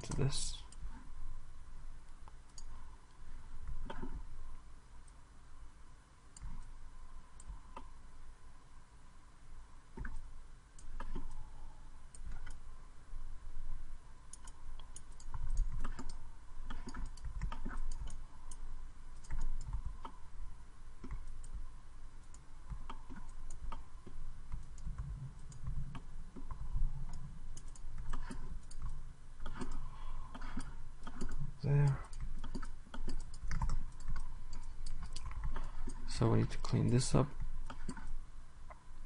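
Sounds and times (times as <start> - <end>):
faint steady hum: 0.0 - 39.0
computer mouse clicking: 2.1 - 2.8, 3.6 - 4.2, 6.4 - 6.7, 7.4 - 7.9, 10.0 - 11.4, 12.1 - 12.6, 14.3 - 20.2, 21.0 - 21.6, 22.2 - 38.8.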